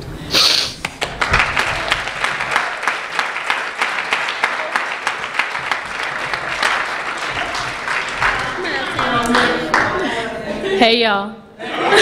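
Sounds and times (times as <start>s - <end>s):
congregation clapping: 0.8s - 10.3s.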